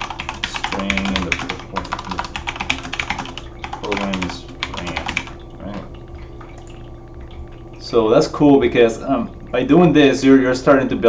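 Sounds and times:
fast typing on keyboard: 0:00.0 - 0:05.4.

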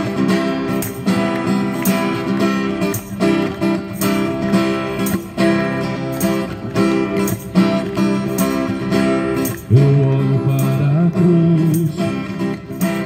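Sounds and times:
acoustic guitar strumming: 0:00.0 - 0:13.0
tambourine jingles: 0:00.0 - 0:13.0
man singing: 0:09.7 - 0:12.4.

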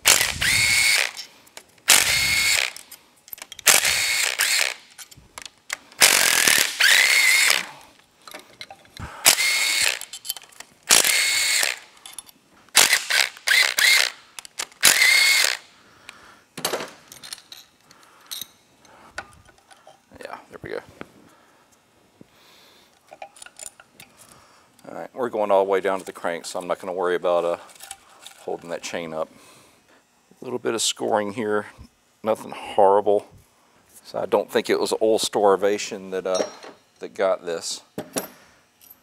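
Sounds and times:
cordless drill whining: 0:00.0 - 0:01.3, 0:01.9 - 0:02.8, 0:03.6 - 0:04.9, 0:06.0 - 0:07.8, 0:09.2 - 0:10.1, 0:10.9 - 0:11.9, 0:12.8 - 0:14.2, 0:14.8 - 0:15.7
metal parts clicking: 0:00.1 - 0:15.6, 0:23.1 - 0:24.1.

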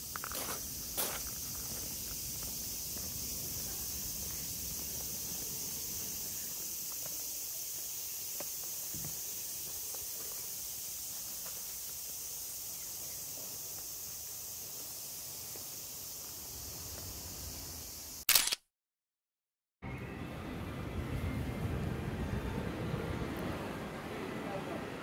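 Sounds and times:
insect chorus chirring: 0:00.0 - 0:18.2.

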